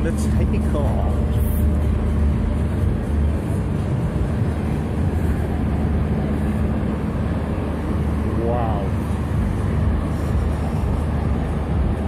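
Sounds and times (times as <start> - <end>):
low rumble of fairground rides: 0.0 - 12.0.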